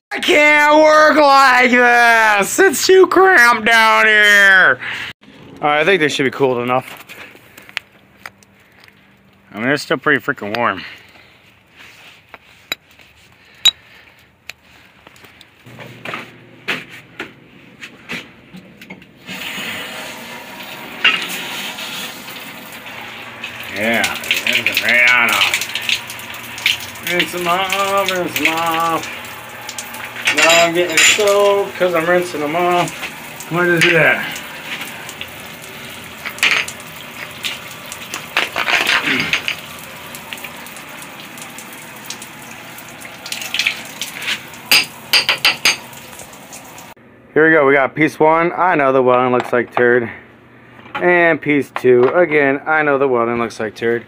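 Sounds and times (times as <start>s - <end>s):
running water rushing: 19.3s - 47.0s
metal plates clinking: 30.3s - 31.6s.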